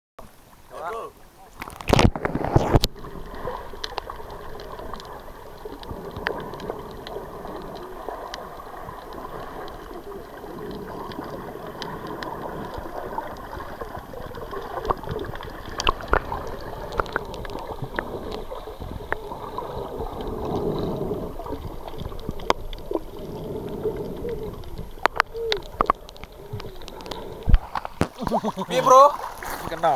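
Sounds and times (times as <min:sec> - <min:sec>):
muffled underwater wash: 0:00.2 - 0:29.9
underwater bubbling: 0:00.2 - 0:29.9
underwater clicks and pops: 0:01.6 - 0:03.0, 0:10.6 - 0:19.3, 0:21.5 - 0:23.1, 0:24.0 - 0:28.4
water splash: 0:01.6 - 0:23.2, 0:24.6 - 0:29.9.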